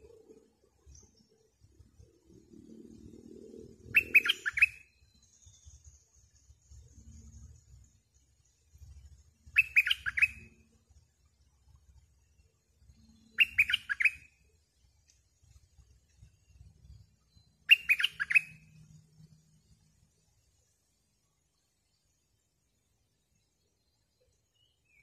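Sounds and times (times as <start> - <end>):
bird singing sharp notes: 3.8 - 6.0, 9.5 - 10.6, 13.0 - 14.5, 16.4 - 19.3.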